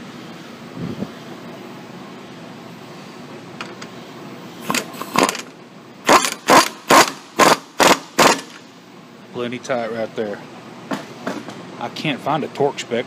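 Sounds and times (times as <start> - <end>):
impact wrench bursts: 4.6 - 8.7.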